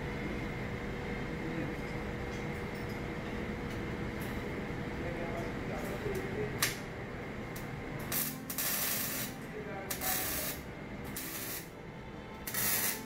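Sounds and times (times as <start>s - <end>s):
arc welder crackling hiss: 8.0s - 11.8s, 12.4s - 13.0s.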